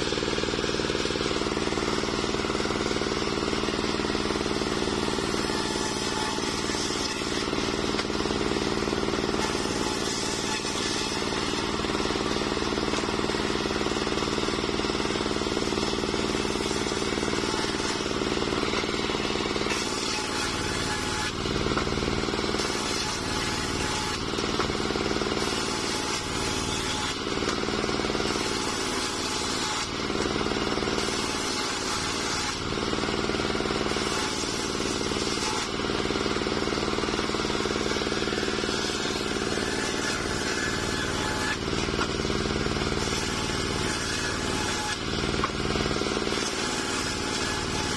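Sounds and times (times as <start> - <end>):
circular saw blade cutting log: 0.0 - 47.9
sawmill engine humming: 0.0 - 47.9.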